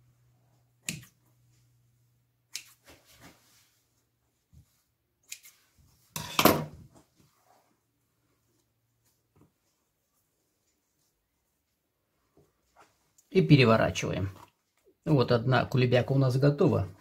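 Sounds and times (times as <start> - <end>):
scissors snipping dough: 0.8 - 1.2, 5.2 - 5.6.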